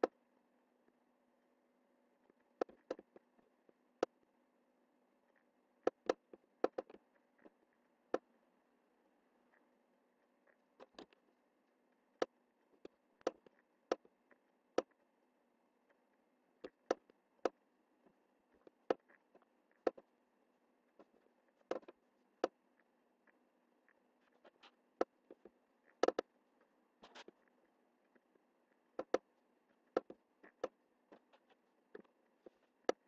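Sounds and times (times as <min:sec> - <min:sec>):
faint steady hum: 0:00.0 - 0:33.0
mouse buttons clicking: 0:26.0 - 0:26.3, 0:29.0 - 0:29.3.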